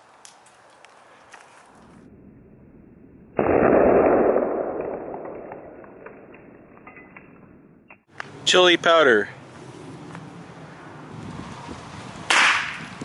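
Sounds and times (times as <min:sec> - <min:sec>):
loud bang: 0:03.3 - 0:06.4.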